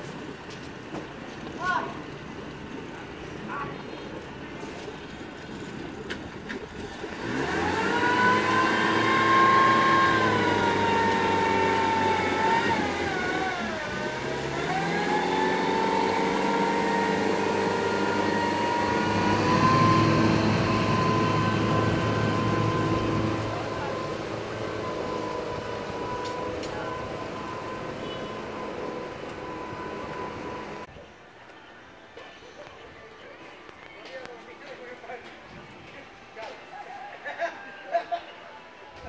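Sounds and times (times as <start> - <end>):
motorboat engine running: 0.2 - 30.9.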